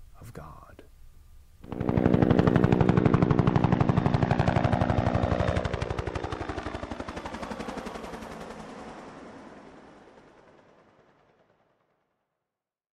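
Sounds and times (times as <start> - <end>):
helicopter rotor blade slap: 1.6 - 11.3.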